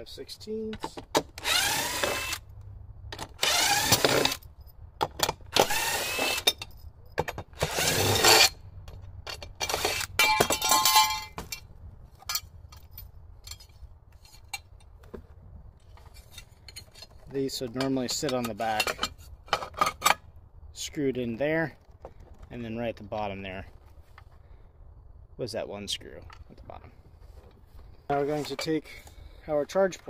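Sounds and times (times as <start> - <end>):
cordless drill motor whining: 1.4 - 2.4, 3.4 - 4.4, 5.5 - 6.5, 7.6 - 8.6
metallic clinking rattle: 8.4 - 14.9.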